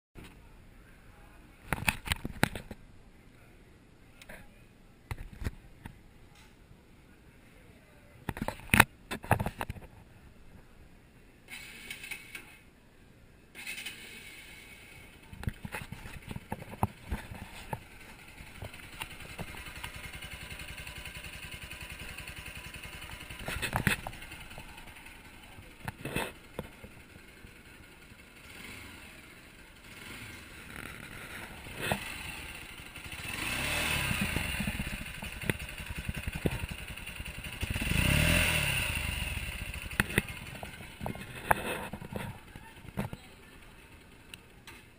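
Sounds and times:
motorcycle engine revving: 0:16.2 - 0:44.2.

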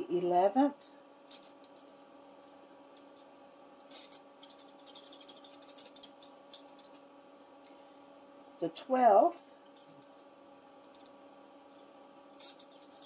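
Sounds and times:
pen scribbling on paper: 0:03.9 - 0:07.0, 0:12.4 - 0:13.0.

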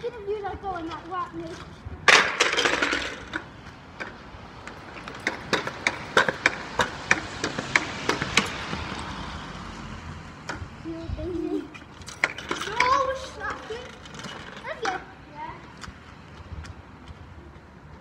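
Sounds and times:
car passing: 0:00.0 - 0:18.0
pogo stick knocking: 0:00.8 - 0:09.1, 0:11.7 - 0:15.0.

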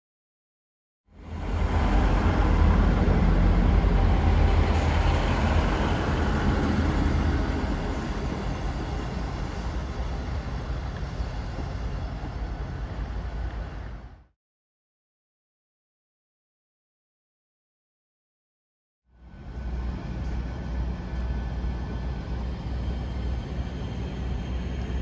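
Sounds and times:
diesel train rumble: 0:01.1 - 0:14.3, 0:19.1 - 0:25.0
train wheels on rails: 0:01.2 - 0:14.2, 0:19.2 - 0:25.0.

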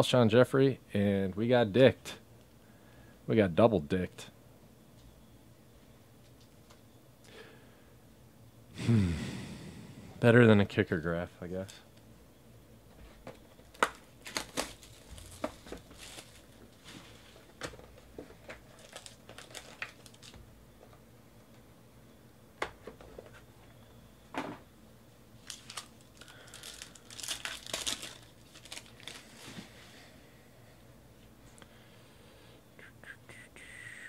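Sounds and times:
foil wrapper crinkling and tearing: 0:13.6 - 0:17.8, 0:18.4 - 0:20.4, 0:25.4 - 0:29.5
cards and box rustling: 0:13.6 - 0:20.4, 0:25.4 - 0:29.7.

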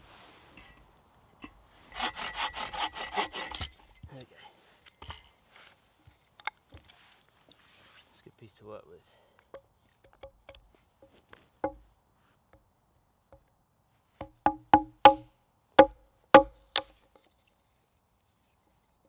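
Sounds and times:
hatchet tapping wood: 0:09.5 - 0:10.6, 0:11.6 - 0:11.8, 0:14.2 - 0:17.0
sharp ringing wooden knocks: 0:09.5 - 0:10.6, 0:11.6 - 0:11.8, 0:14.2 - 0:17.1.

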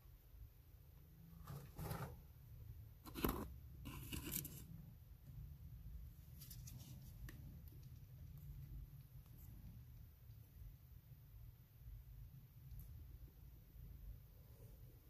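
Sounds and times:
faint scrapes and crunches: 0:01.3 - 0:02.3, 0:03.0 - 0:04.8, 0:06.2 - 0:07.4
low steady rumble: 0:02.2 - 0:15.0.

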